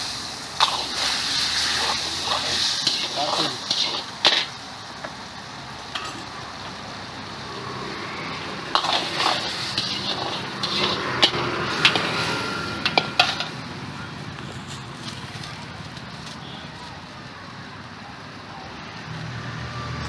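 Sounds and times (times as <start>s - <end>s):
sauce sizzling in a wok: 0.0s - 14.6s
ladle scraping a metal wok: 0.6s - 4.6s, 8.7s - 13.7s.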